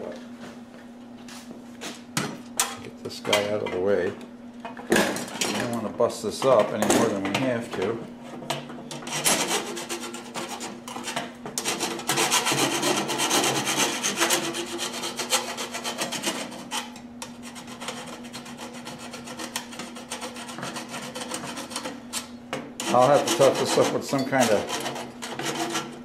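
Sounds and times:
hand file scraping metal: 8.9s - 22.0s, 22.8s - 26.0s.

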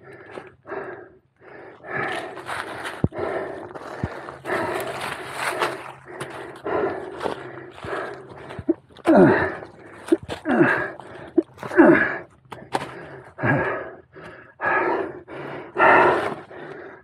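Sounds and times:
man panting: 0.0s - 17.0s
man groaning: 8.6s - 12.1s.

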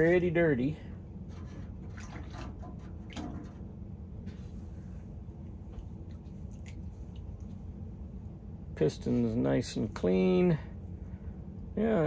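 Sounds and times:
low steady hum: 0.0s - 12.0s
small water splashes: 1.9s - 3.6s, 6.0s - 7.6s.

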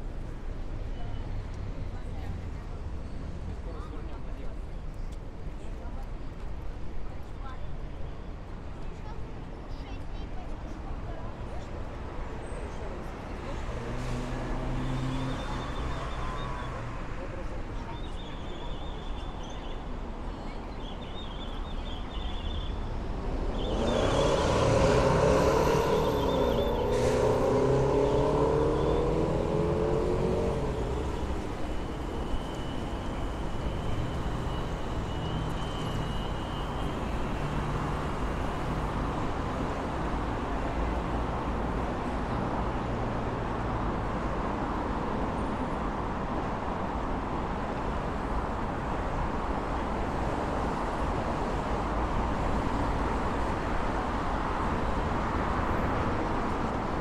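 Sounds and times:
city street traffic: 0.0s - 57.0s
vehicle passing by: 23.7s - 32.3s.

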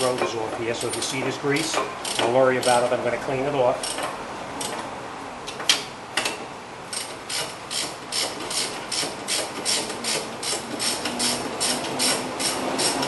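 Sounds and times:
ratchet wrench clicking: 0.9s - 2.8s, 3.8s - 4.8s, 6.9s - 13.0s.

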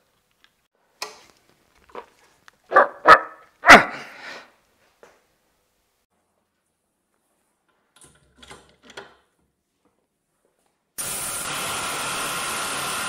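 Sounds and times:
dog barking: 2.7s - 4.1s.

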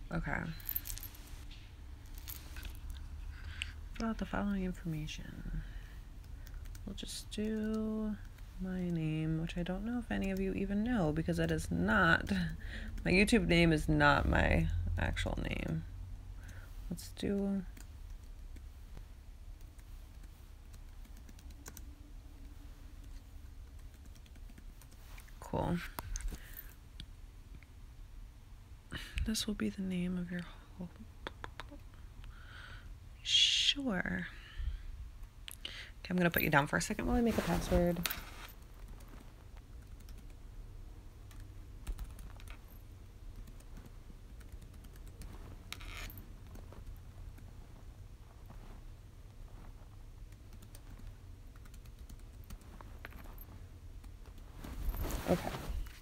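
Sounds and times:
laptop keyboard typing: 6.2s - 9.0s, 19.6s - 21.9s, 23.0s - 25.0s, 38.6s - 40.4s, 41.3s - 42.6s, 43.3s - 45.3s, 50.3s - 53.2s.

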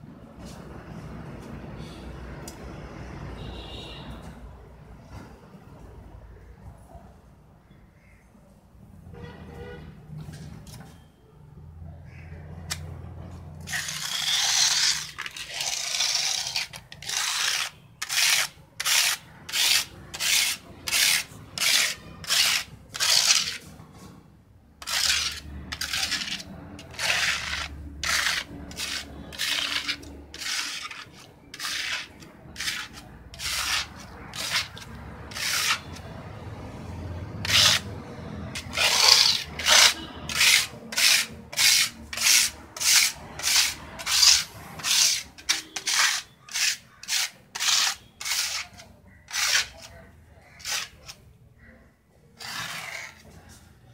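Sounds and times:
scraper scraping wet plaster: 13.6s - 24.2s, 24.8s - 36.7s, 37.3s - 53.7s.

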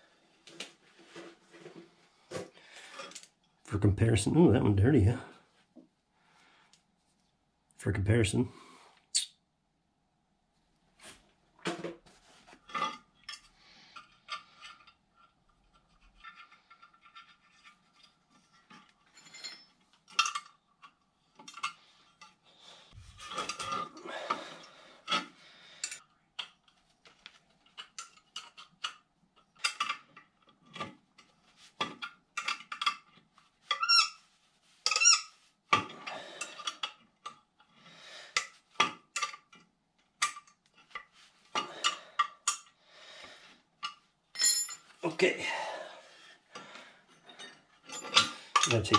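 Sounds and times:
metal clinks and scrapes: 12.6s - 22.4s, 27.6s - 37.7s, 43.8s - 45.0s, 47.0s - 48.9s
short squeaks and rubbing: 33.7s - 35.5s.

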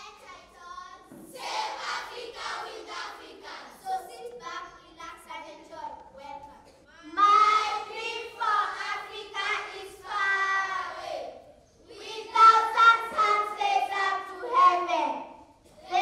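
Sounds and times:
children singing together: 1.2s - 4.1s, 7.0s - 16.0s.

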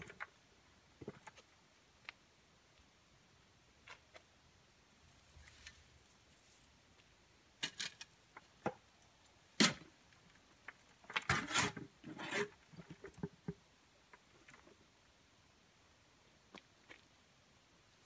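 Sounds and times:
shovel scraping soil in wheelbarrow: 11.2s - 12.6s.

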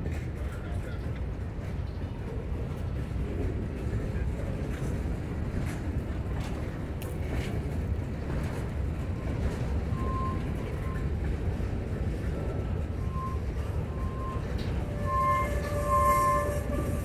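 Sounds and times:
steel wheels rumbling on rail: 0.0s - 17.0s
faint wheel squeals: 8.5s - 17.0s.

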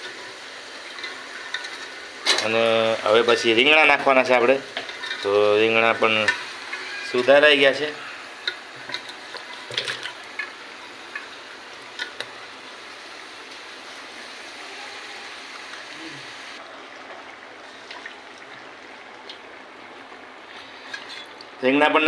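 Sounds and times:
vegetables sizzling in hot oil: 0.0s - 16.6s.

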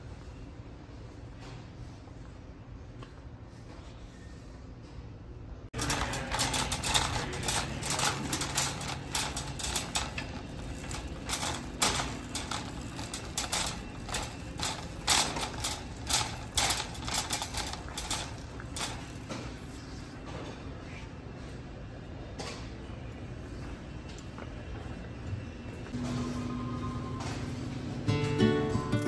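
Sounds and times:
shopping cart rattling on tiles: 5.8s - 19.8s.

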